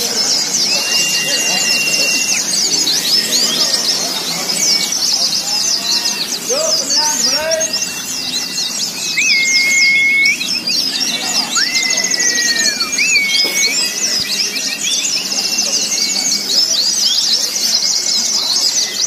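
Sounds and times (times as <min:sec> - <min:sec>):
long whistled notes: 0:00.0 - 0:05.0, 0:06.9 - 0:16.8
low crowd murmur: 0:00.0 - 0:19.0
songbirds chirping and trilling: 0:00.0 - 0:19.0.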